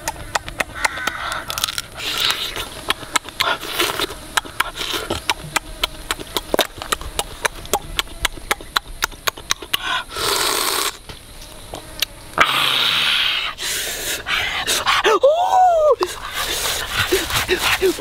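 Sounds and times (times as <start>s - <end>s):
crab shell crunching: 0.0s - 9.8s.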